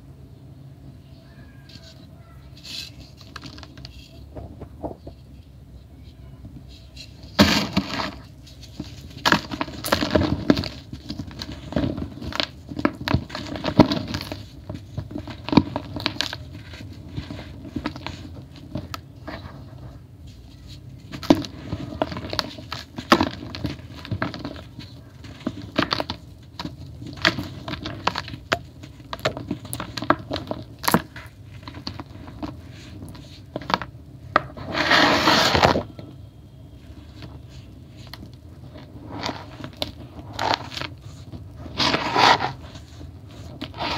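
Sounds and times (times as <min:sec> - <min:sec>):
powdery blocks crumbling by hand: 0:01.7 - 0:05.2, 0:07.0 - 0:43.9
powder falling into plastic tub: 0:07.3 - 0:08.3, 0:09.2 - 0:19.1.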